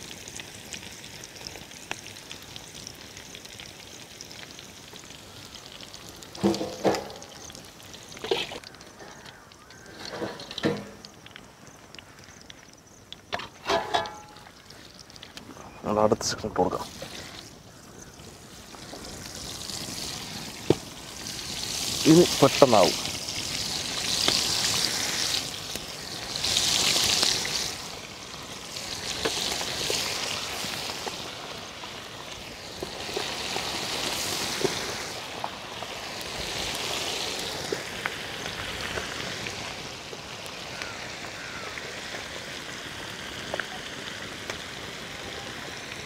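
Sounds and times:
deep-frying in hot oil sizzling: 0.0s - 46.0s.

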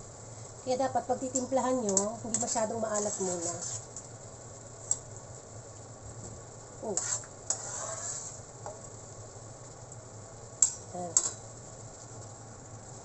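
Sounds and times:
broth sizzling: 6.6s - 13.0s.

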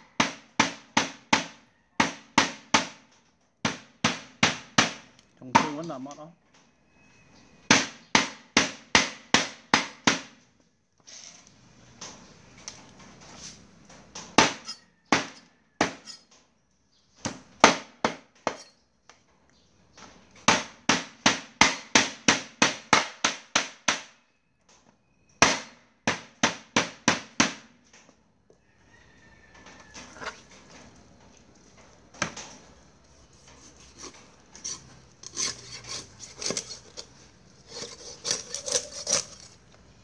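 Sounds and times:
cleaver chopping on wooden block: 14.4s - 16.1s, 20.5s - 24.1s, 25.4s - 27.6s.

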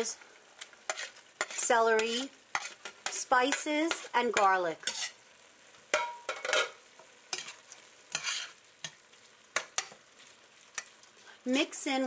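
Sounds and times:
faint sizzle: 0.0s - 12.0s
metal spoon scraping a pot: 0.9s - 5.2s, 6.0s - 9.0s.

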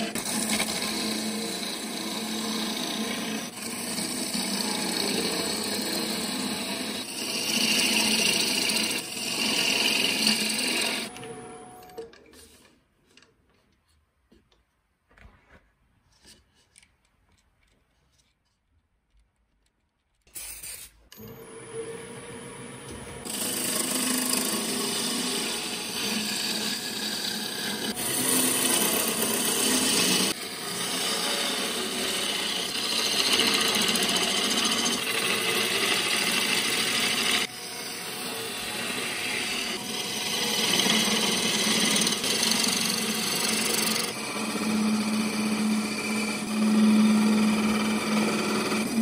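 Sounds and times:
turning tool scraping wood: 0.0s - 11.2s, 23.2s - 49.0s
wood lathe running: 0.0s - 12.0s, 21.2s - 49.0s.

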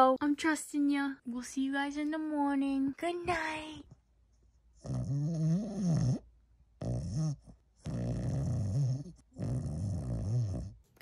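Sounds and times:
dog snoring: 4.8s - 10.9s.

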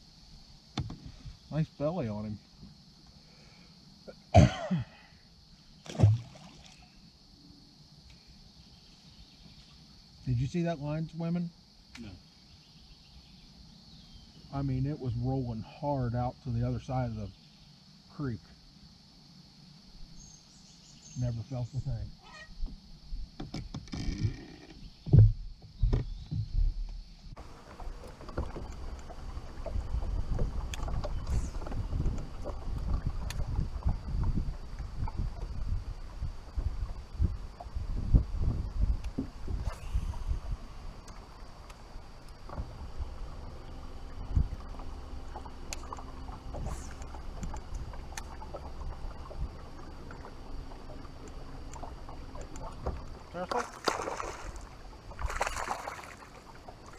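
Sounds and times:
knocks and thumps on boat deck: 0.7s - 1.3s, 22.6s - 35.8s, 37.6s - 40.3s, 42.4s - 43.0s
small ticks: 8.0s - 8.3s, 41.0s - 42.6s, 44.4s - 54.0s
low wind rumble on microphone: 21.8s - 53.3s
faint steady hum: 25.1s - 56.9s.

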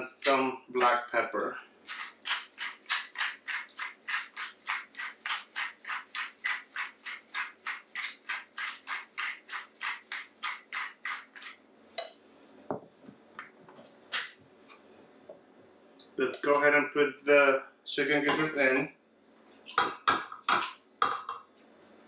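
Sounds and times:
pepper mill grinding: 1.8s - 11.6s.

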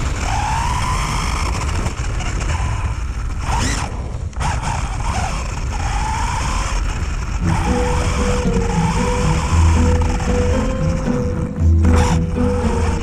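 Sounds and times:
electric rc car motor whining: 0.0s - 11.2s, 11.8s - 13.0s.

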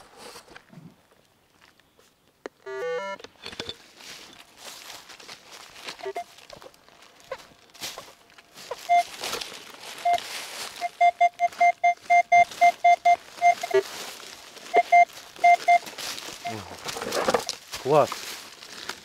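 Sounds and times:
metal detector short beeps: 6.0s - 6.3s, 8.8s - 9.1s, 10.0s - 10.2s, 10.8s - 13.8s, 14.7s - 15.8s.

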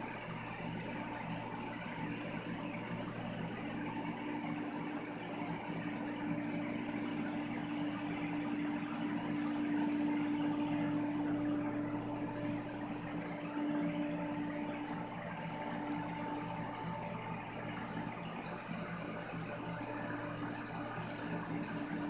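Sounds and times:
electric train humming: 5.2s - 22.0s.

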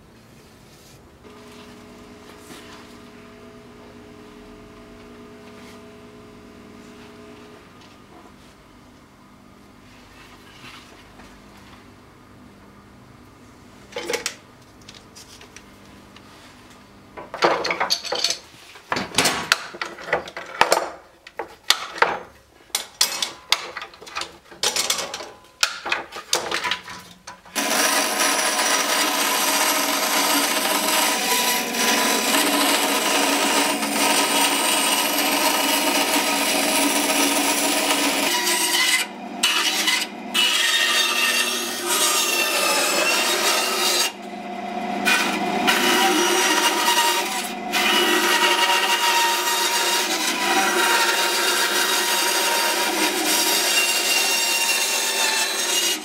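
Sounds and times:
bandsaw cutting wood: 27.6s - 56.0s.

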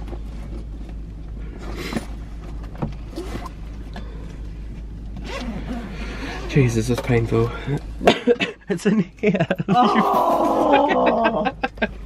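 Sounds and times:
steady low hum: 0.0s - 12.0s
fabric suitcase rustling: 1.6s - 3.8s.

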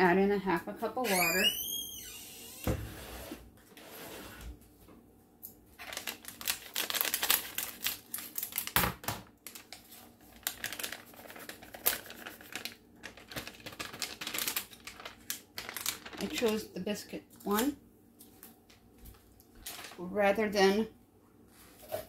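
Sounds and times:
paper pouch crinkling: 5.8s - 8.8s, 9.4s - 16.6s, 19.6s - 20.0s.

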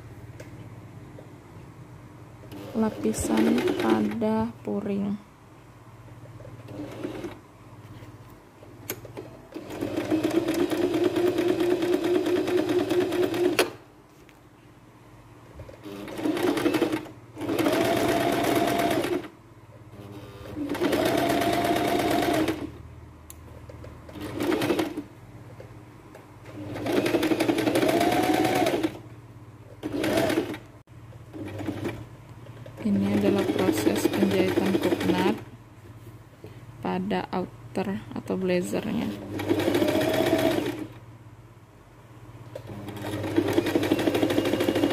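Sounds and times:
sewing machine stitching: 2.5s - 4.2s, 6.6s - 7.4s, 9.2s - 13.8s, 15.8s - 19.3s, 20.0s - 22.7s, 24.1s - 25.0s, 26.5s - 29.0s, 29.8s - 30.6s, 32.7s - 35.5s, 39.0s - 41.0s, 42.6s - 44.9s.

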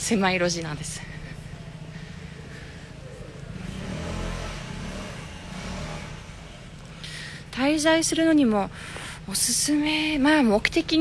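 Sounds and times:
vehicle passing: 0.0s - 8.0s
low street rumble: 0.0s - 11.0s.

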